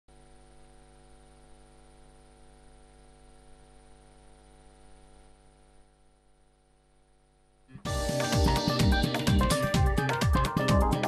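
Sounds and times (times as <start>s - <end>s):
electrical mains hum: 0.1s - 7.9s.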